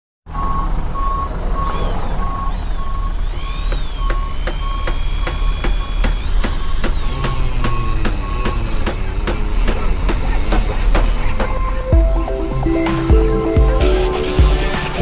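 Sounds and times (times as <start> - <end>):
reversing alarm beeping: 0.3 - 9.4
deep engine rumble: 0.3 - 15.0
high rising and falling whines: 1.0 - 15.0.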